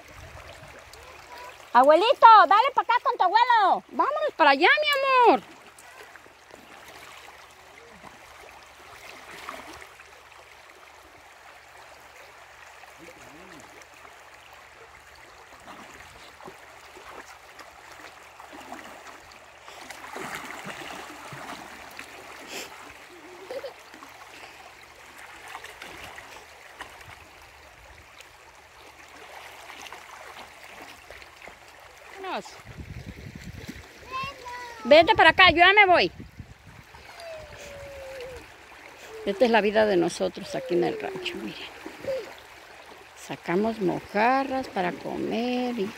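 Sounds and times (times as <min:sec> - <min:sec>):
child splashing in water: 0:00.0 - 0:02.4, 0:04.7 - 0:10.6, 0:14.7 - 0:27.2, 0:28.9 - 0:35.0, 0:36.8 - 0:43.0
river running over rocks: 0:00.0 - 0:36.0.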